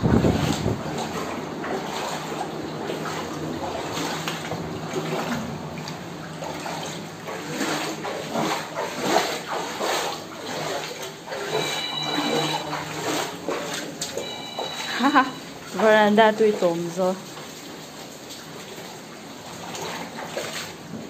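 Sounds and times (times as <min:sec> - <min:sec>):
shallow water sloshing and splashing: 0:00.0 - 0:21.0.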